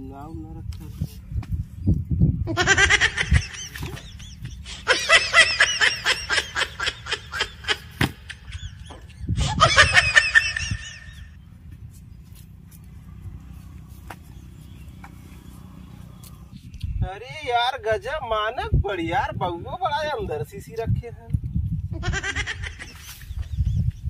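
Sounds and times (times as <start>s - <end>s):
high-pitched laughter: 2.5s - 11.4s, 21.9s - 23.3s.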